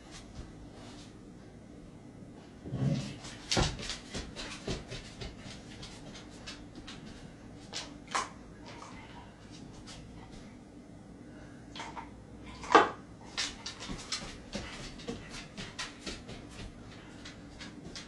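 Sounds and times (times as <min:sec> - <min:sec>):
dog claws clicking on floor: 0:03.2 - 0:08.3, 0:12.6 - 0:18.0.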